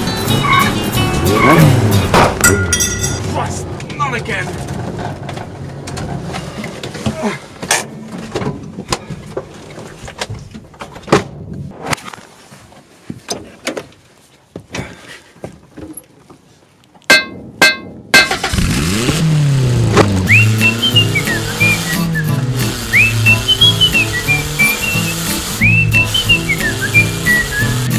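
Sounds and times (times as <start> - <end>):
van engine running: 0.0 - 8.8, 18.3 - 27.9.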